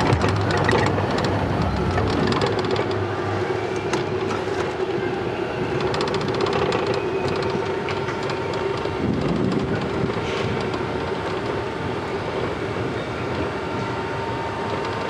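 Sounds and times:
scattered clicks: 0.0 - 3.0, 5.8 - 11.6.

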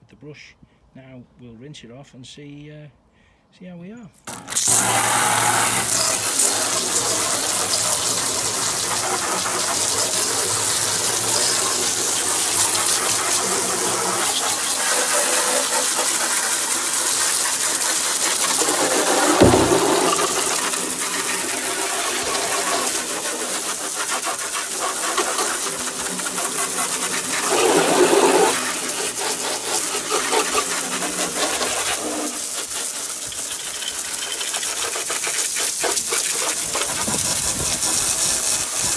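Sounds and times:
hose spraying water on plastic: 4.3 - 38.9
thump: 18.4 - 22.8.

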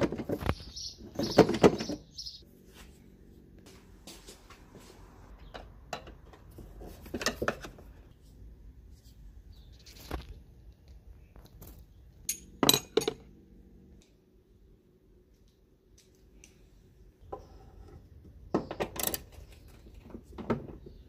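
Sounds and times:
metal parts clinking and clicking: 11.6 - 13.2.

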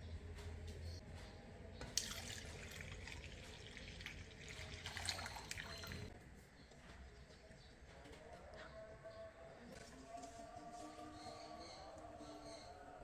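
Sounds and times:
liquid pouring into pan: 2.0 - 6.1.

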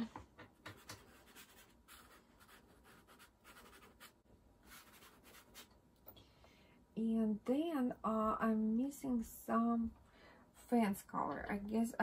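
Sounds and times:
pastel stick scratching on paper: 0.7 - 5.7.

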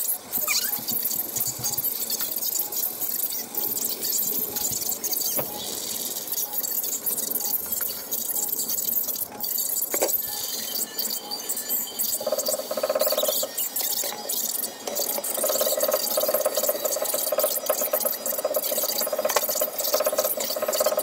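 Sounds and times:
porridge bubbling in a pot: 11.8 - 21.0.

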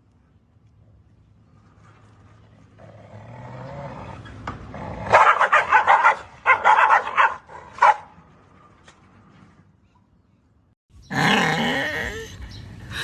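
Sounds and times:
dogs snarling and barking: 2.8 - 8.1.

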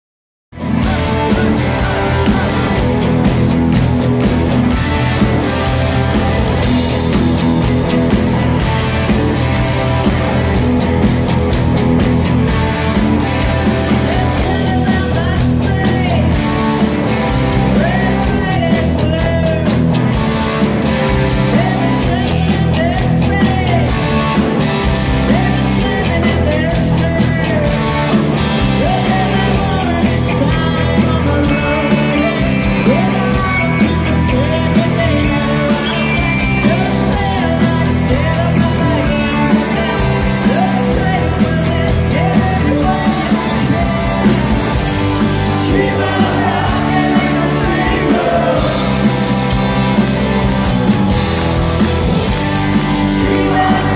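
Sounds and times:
drums: 0.5 - 53.9
electric guitars: 0.5 - 53.9
person singing lead vocal: 0.6 - 3.7, 13.2 - 16.7, 17.5 - 20.0, 21.3 - 24.1, 25.1 - 49.5, 53.0 - 53.9.

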